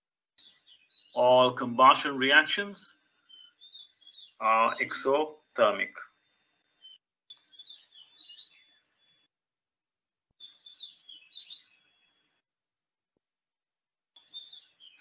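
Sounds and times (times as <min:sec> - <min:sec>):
songbird singing: 0:00.4 - 0:09.3, 0:10.4 - 0:12.4, 0:14.2 - 0:15.0.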